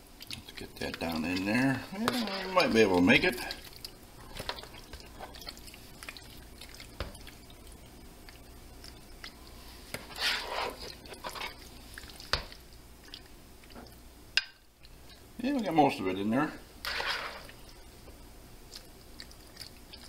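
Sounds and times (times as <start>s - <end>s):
wet squish of saucy pasta: 0.0s - 14.0s, 18.6s - 20.0s.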